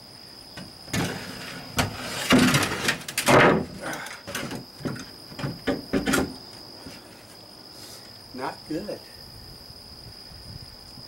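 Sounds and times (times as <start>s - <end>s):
crickets chirping: 0.0s - 11.0s
plywood scraping against boat hull: 0.9s - 7.1s.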